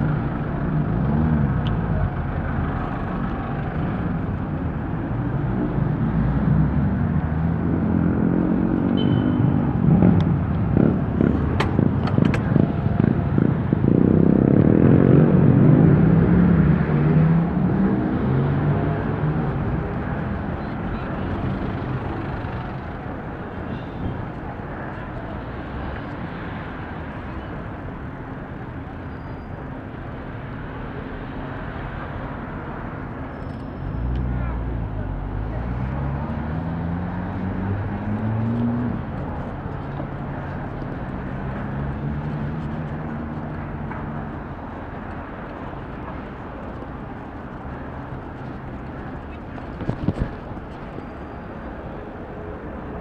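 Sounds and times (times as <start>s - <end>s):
vehicle engine running close by: 0.0s - 33.2s, 33.8s - 53.0s
passing cars: 0.0s - 53.0s
road noise: 0.0s - 53.0s
street traffic noise: 0.0s - 53.0s
wind noise: 41.7s - 51.8s.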